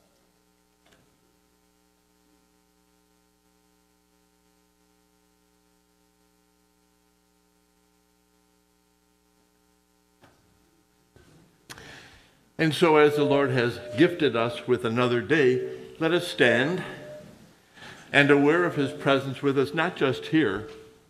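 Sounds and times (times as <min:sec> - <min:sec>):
faint mains hum: 0:00.0 - 0:21.0.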